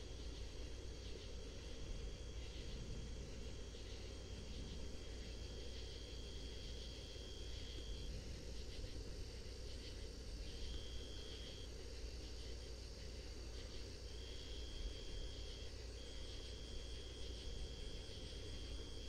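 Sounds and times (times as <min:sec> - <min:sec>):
low background rumble: 0:00.0 - 0:10.8
crickets trilling: 0:00.0 - 0:19.0.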